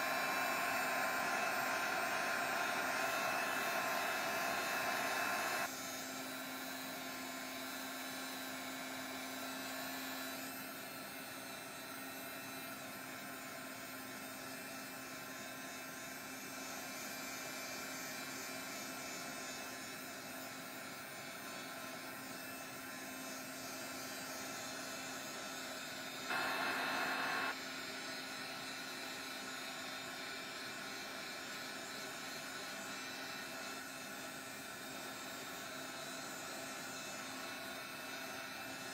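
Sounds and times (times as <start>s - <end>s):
heat gun blowing: 0.0s - 6.4s, 26.2s - 27.6s.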